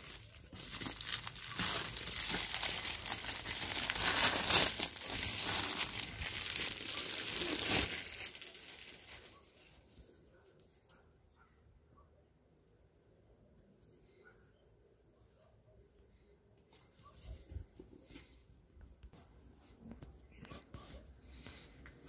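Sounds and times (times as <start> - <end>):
plastic wrapping crinkling: 0.0 - 10.0.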